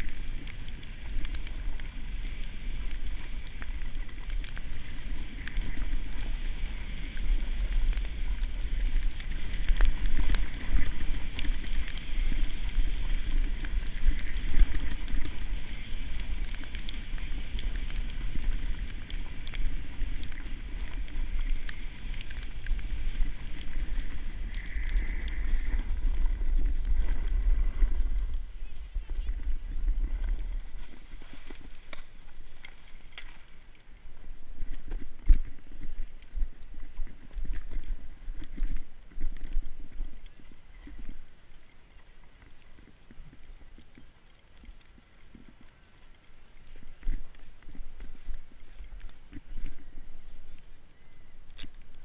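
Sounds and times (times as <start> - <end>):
sliding over snow: 0.0 - 36.6.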